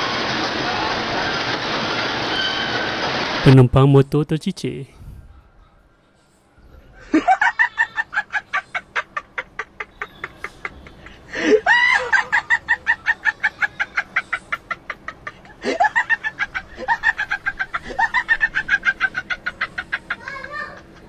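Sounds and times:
comic cackling sound effect: 7.1 - 21.0.

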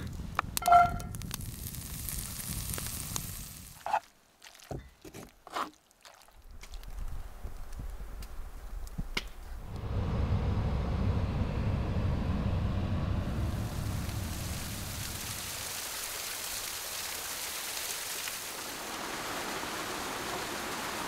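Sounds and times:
light sizzle in a skillet: 1.0 - 3.9.

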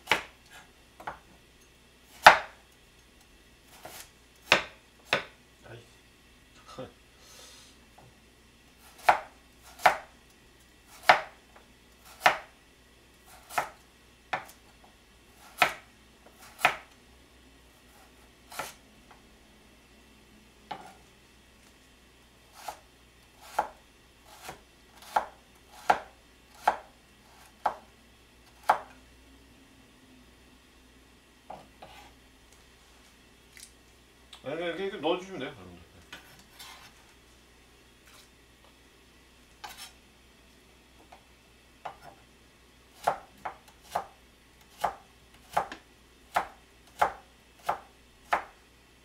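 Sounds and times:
knife chopping on cutting board: 0.0 - 1.2, 2.2 - 2.6, 3.7 - 5.4, 8.9 - 10.1, 11.0 - 11.4, 12.0 - 12.5, 13.4 - 14.6, 15.4 - 16.9, 18.0 - 18.8, 20.7 - 21.0, 23.4 - 27.9, 28.6 - 28.9, 31.5 - 32.1, 39.6 - 40.0, 41.8 - 42.2, 43.0 - 44.2, 44.8 - 48.6.

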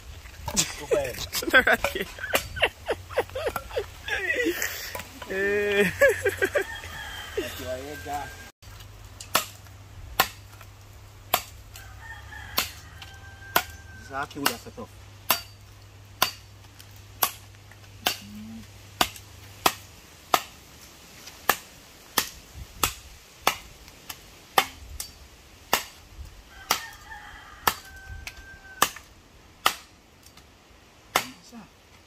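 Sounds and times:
rooster crowing: 5.9 - 8.5, 11.7 - 14.3, 26.5 - 29.1.

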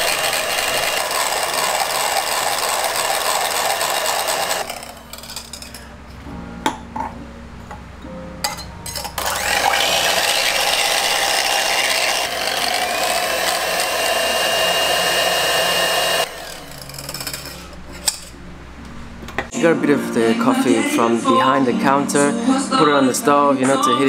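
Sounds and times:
electric whisk motor whining: 0.0 - 5.6, 9.1 - 17.7.

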